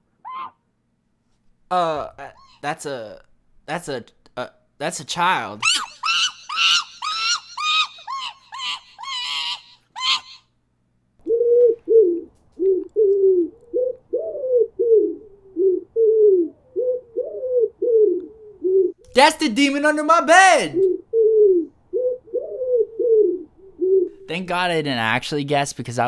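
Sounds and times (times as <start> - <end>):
monkey screeching: 0.2 - 0.6, 5.6 - 10.5.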